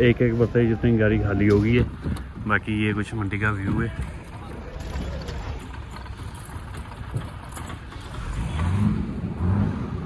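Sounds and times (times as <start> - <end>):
vehicle engines rumbling: 0.0 - 10.0.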